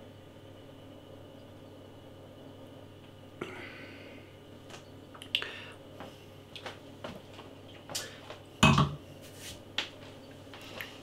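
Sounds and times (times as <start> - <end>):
glass knocking on worktop: 8.6 - 9.0.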